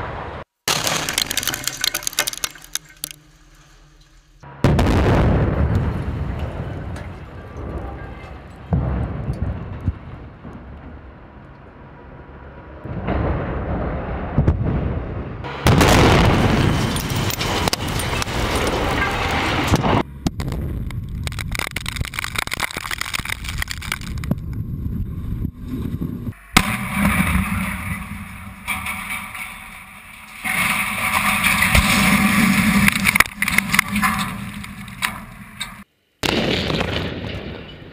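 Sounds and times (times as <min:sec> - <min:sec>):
rush of dust and debris: 0:00.7 - 0:09.8, 0:15.4 - 0:35.8
concrete structures collapsing: 0:00.7 - 0:11.5, 0:12.7 - 0:35.9
sharp explosive blast: 0:04.6 - 0:07.0, 0:13.0 - 0:18.6, 0:36.2 - 0:37.9.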